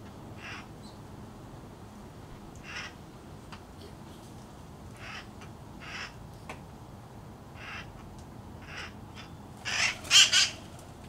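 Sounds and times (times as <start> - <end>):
parrot squawking: 9.7 - 10.6.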